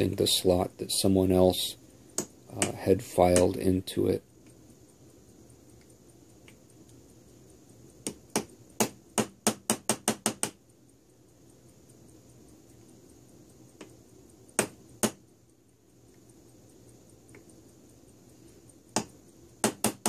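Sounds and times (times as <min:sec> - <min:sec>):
sharp metallic taps of punch: 0:14.6 - 0:15.2.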